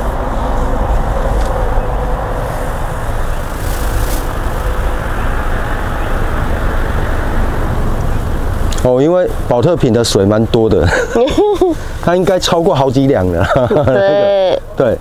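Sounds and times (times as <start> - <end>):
low rumble: 0.0 - 8.8
loud rushing noise: 0.0 - 10.5.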